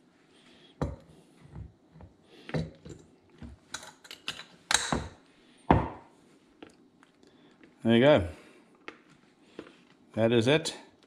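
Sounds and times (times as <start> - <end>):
glass lid and clasp closing: 3.8 - 5.1.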